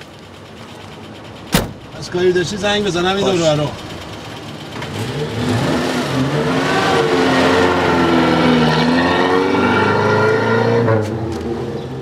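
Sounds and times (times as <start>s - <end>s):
pickup truck engine revving: 2.6s - 11.1s.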